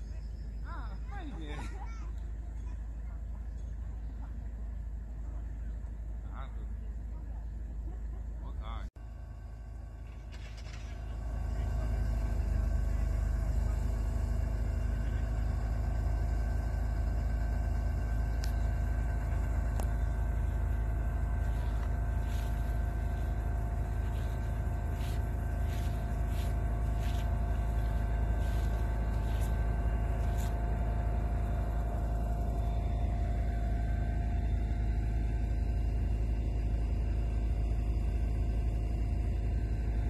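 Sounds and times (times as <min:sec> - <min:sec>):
train rumbling: 0:10.0 - 0:34.3.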